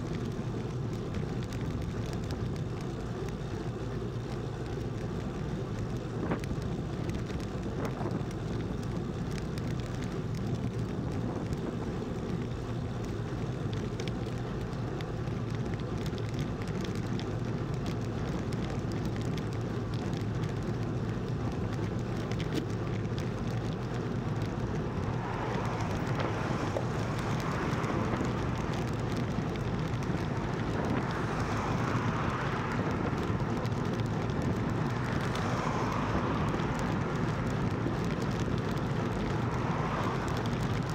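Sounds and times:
tyres humming on tarmac: 0:00.0 - 0:40.9
wind rushing over microphone: 0:23.8 - 0:40.9.

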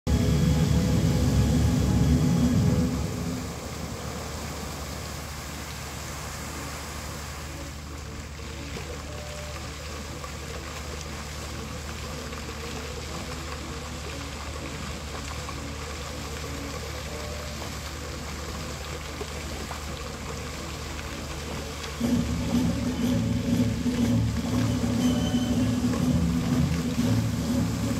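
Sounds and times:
low rumble: 0:00.0 - 0:05.6, 0:21.8 - 0:27.9
faint music: 0:00.1 - 0:27.9
fountain jets splashing: 0:00.1 - 0:27.9.

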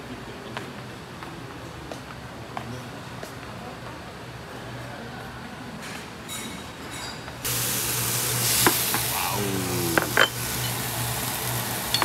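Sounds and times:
meat sizzling on grill: 0:07.4 - 0:12.0.

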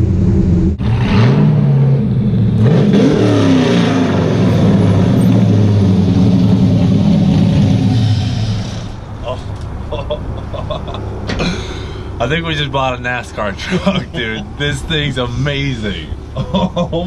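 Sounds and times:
v eight truck engine revving: 0:00.0 - 0:09.6.

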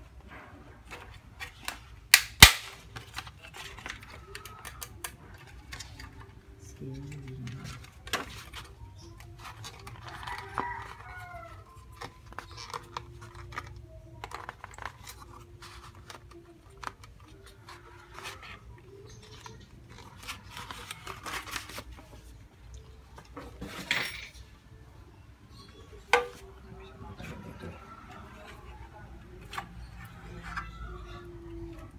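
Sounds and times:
plastic parts clicking and knocking: 0:00.8 - 0:06.4, 0:11.9 - 0:21.8
paper rustling: 0:11.8 - 0:22.4.

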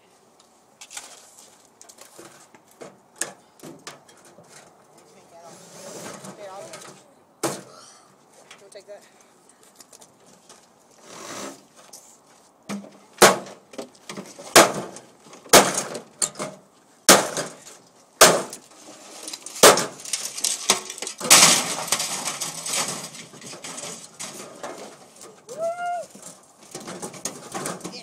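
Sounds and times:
clatter of breaking parts: 0:18.5 - 0:25.4, 0:26.2 - 0:28.0.

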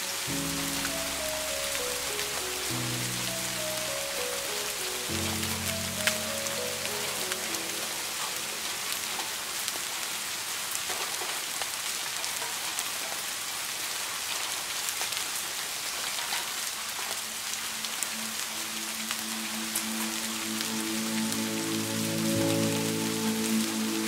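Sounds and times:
soft sustained music tones: 0:00.0 - 0:09.8, 0:16.9 - 0:24.0
steady rain falling: 0:00.0 - 0:24.0.

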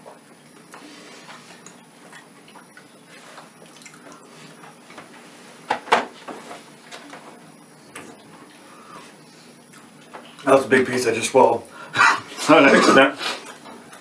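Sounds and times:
people chewing: 0:00.1 - 0:05.2, 0:08.0 - 0:10.4.

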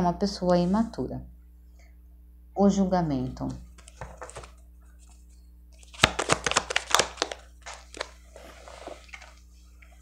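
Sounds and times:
cards clicking and rustling: 0:03.8 - 0:04.6, 0:05.8 - 0:08.2.

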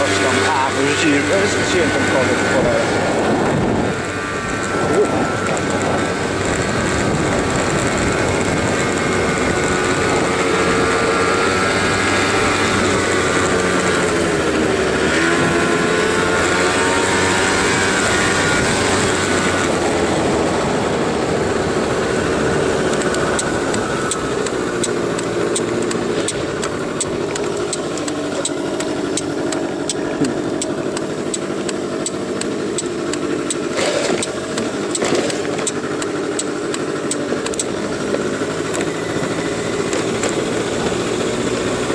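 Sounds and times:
motor scooter engine running: 0:00.0 - 0:41.9
wind noise: 0:01.2 - 0:27.4
fast sharp clicks: 0:22.9 - 0:38.9.

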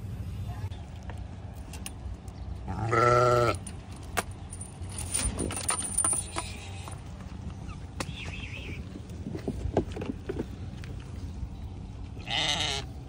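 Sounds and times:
goat bleating: 0:02.6 - 0:03.6, 0:12.2 - 0:13.0
light clicks and rattles: 0:03.6 - 0:07.6.

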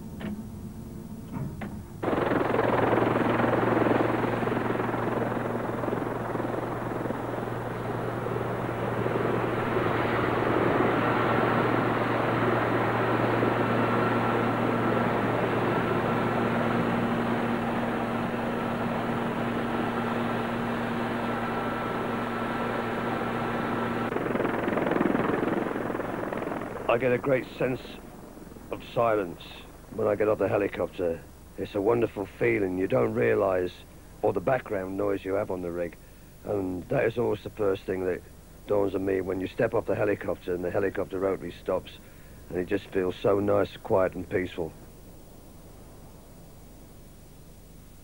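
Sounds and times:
helicopter rotor and turbine: 0:01.7 - 0:31.0.

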